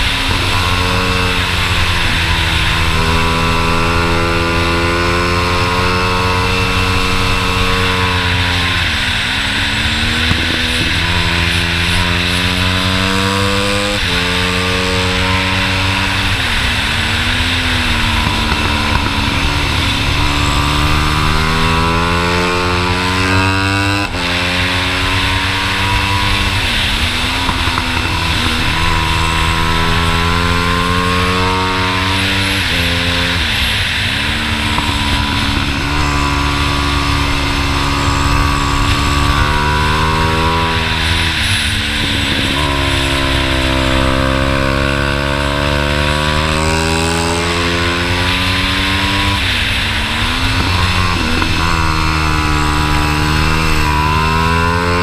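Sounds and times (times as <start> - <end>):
minibike engine at full throttle: 0.0 - 55.0
wind rushing: 14.6 - 45.6.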